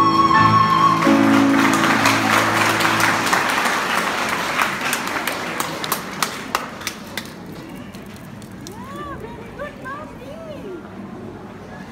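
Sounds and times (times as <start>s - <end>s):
audience applauding: 0.2s - 9.3s.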